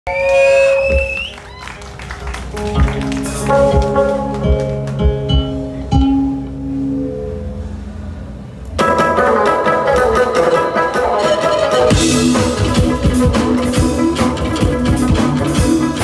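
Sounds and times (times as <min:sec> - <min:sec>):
band with drums: 0:02.4 - 0:06.1, 0:08.8 - 0:16.0
electric shamisen plucked notes: 0:02.6 - 0:07.7, 0:08.7 - 0:16.0.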